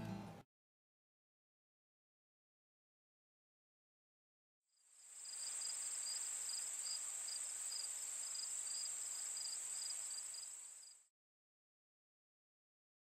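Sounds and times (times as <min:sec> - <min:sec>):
crickets chirping: 0:04.8 - 0:11.1.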